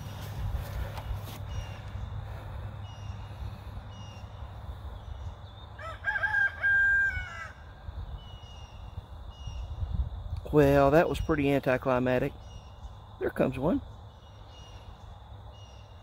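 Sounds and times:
rooster crowing: 0:05.8 - 0:07.8.

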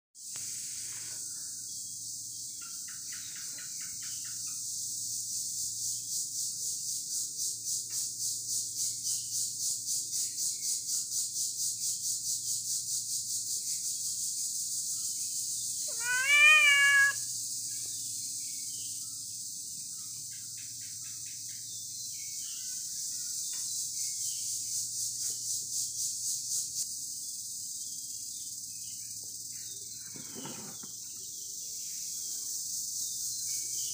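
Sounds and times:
high pulsing insect chorus: 0:00.2 - 0:33.9
cat meowing: 0:15.9 - 0:17.2.

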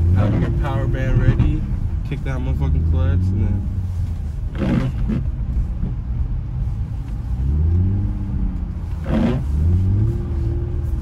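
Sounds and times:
car engine revving: 0:00.0 - 0:05.4, 0:07.2 - 0:11.0.

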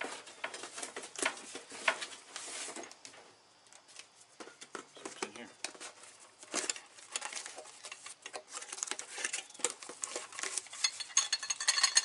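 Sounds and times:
cardboard box crackling and rustling: 0:05.0 - 0:10.9.

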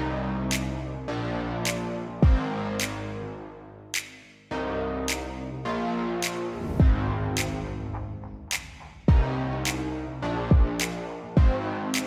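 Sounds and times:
background music: 0:00.0 - 0:12.0
deep bass hit: 0:06.8 - 0:09.6.

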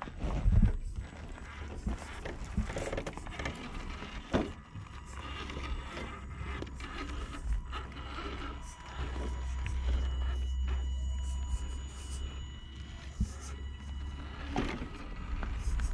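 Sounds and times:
small electric motor whining: 0:00.0 - 0:15.9
tyres scraping on rock: 0:00.0 - 0:15.9
wind rumble on microphone: 0:00.2 - 0:01.0.

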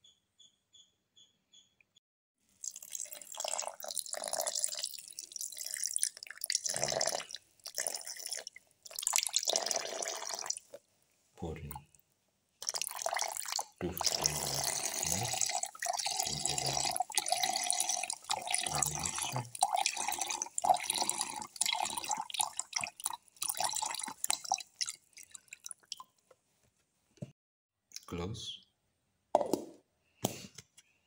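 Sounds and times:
dripping milk: 0:02.6 - 0:10.8, 0:12.6 - 0:26.3
milk pouring into steel jar: 0:02.6 - 0:10.8, 0:12.6 - 0:26.1.

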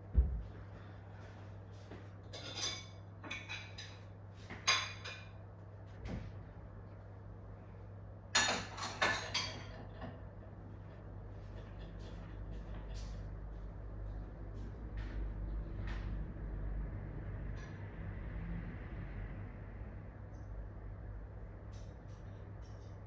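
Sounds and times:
low electrical hum: 0:00.0 - 0:23.0
kitchenware clinking and clattering: 0:02.2 - 0:05.4, 0:08.3 - 0:10.4.

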